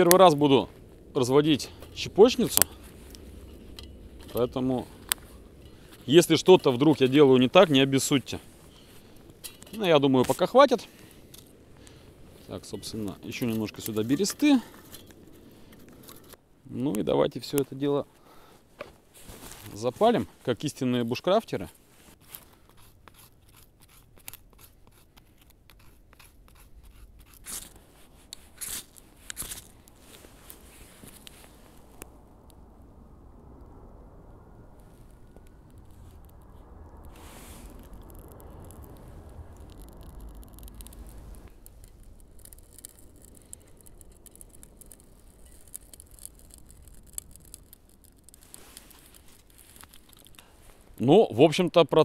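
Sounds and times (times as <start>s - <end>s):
twigs crackling in fire: 0.0s - 52.0s
knife scraping a stick: 22.1s - 31.5s, 39.6s - 50.6s
ferro rod rasps: 35.3s - 51.0s.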